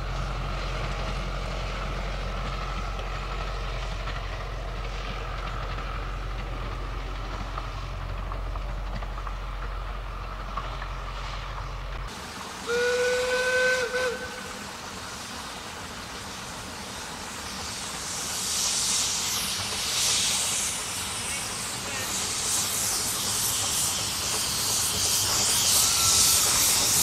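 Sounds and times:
steam hissing: 0.0s - 27.0s
steam locomotive whistle: 12.6s - 14.7s.

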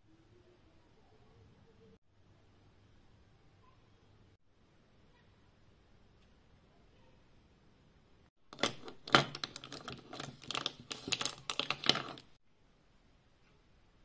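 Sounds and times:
glass vials clinking: 8.5s - 12.4s.

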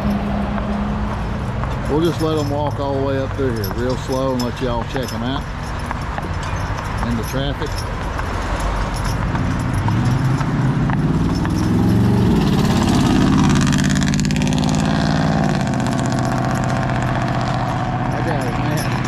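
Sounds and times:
traffic hum: 0.0s - 19.0s
vehicle engine revving past: 8.4s - 19.0s.

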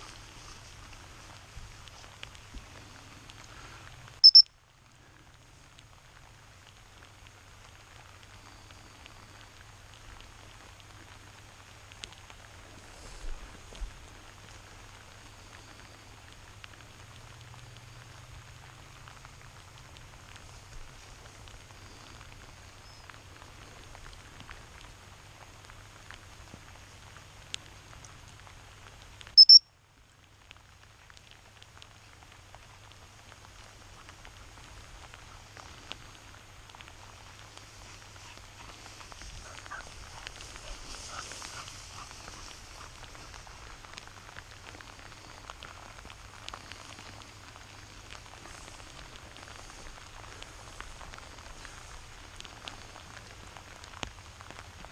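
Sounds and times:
rain falling on grass: 0.0s - 54.9s
shrill high-pitched tones: 4.2s - 4.4s, 29.4s - 29.6s.

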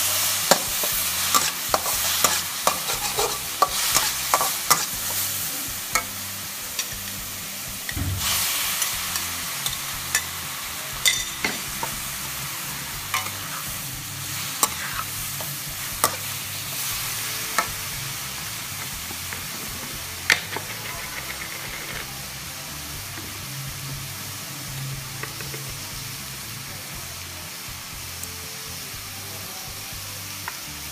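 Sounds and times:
metal spatula scraping a wok: 0.0s - 7.2s, 7.8s - 22.2s
hot oil sizzling: 0.0s - 30.9s.

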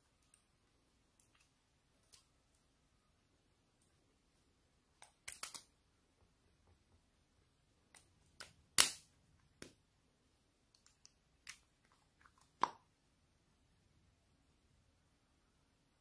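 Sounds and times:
plastic caps clicking and popping: 5.0s - 5.7s, 7.9s - 9.8s, 10.7s - 12.9s.

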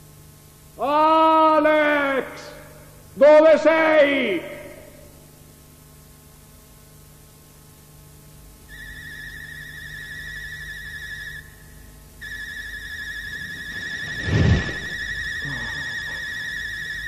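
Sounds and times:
high wavering whistle tone: 8.7s - 17.0s.

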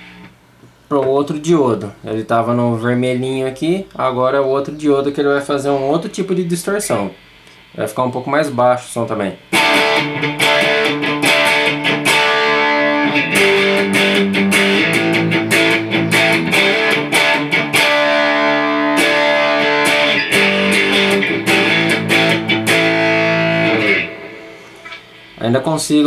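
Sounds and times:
distorted electric guitar chords: 9.4s - 25.4s.

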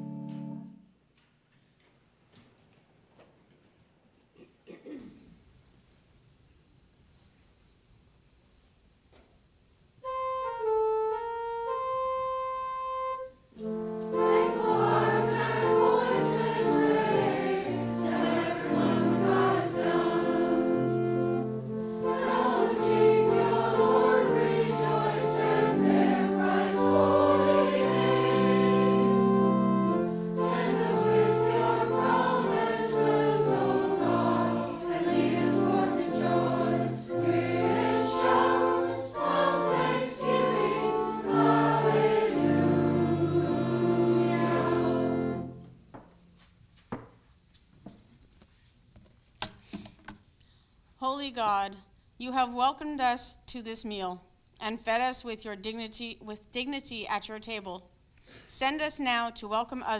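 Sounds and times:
choir singing a hymn: 13.6s - 45.8s.

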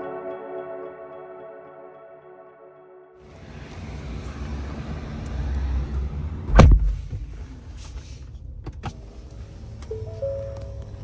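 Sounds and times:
car door thud: 6.5s - 7.2s.

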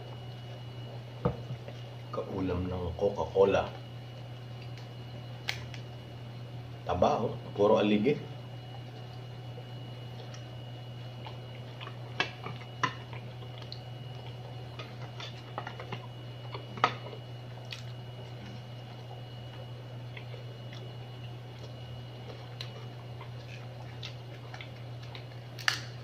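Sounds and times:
steady low hum: 0.0s - 26.0s
chewing: 8.7s - 26.0s.

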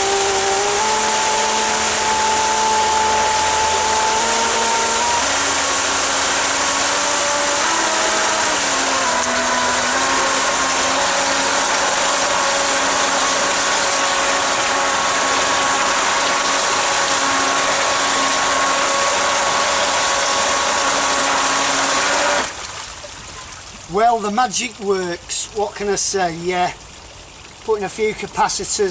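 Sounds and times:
electric motor whine: 0.0s - 22.6s
churning water rushing: 0.0s - 28.9s.

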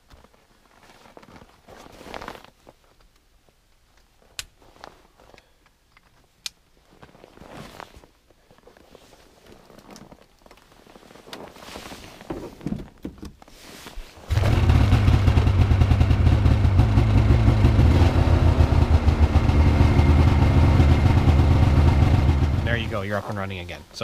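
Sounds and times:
faint handling sounds: 0.0s - 14.3s
snowmobile engine starting and running: 14.3s - 23.4s.

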